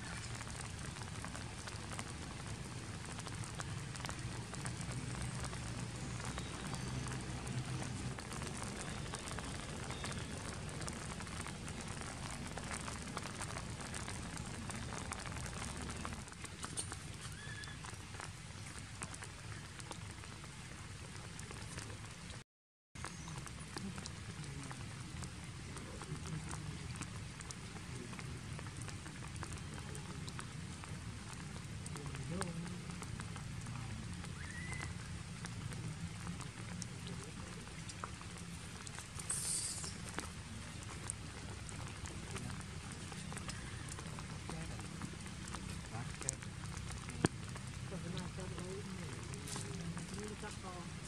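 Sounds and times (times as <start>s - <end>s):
light ticks and crackles: 0.0s - 22.4s, 23.0s - 51.0s
steady forest hiss: 0.0s - 22.4s, 23.0s - 51.0s
brief high-pitched hiss: 39.2s - 40.0s.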